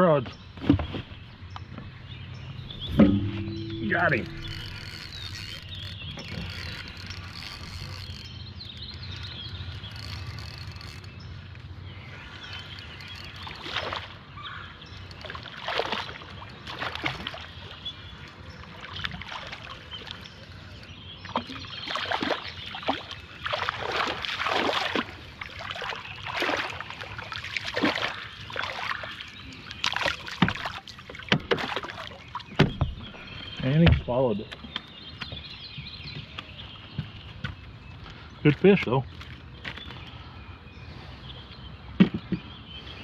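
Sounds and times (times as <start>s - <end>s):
fish splashing at water surface: 21.4s - 29.2s.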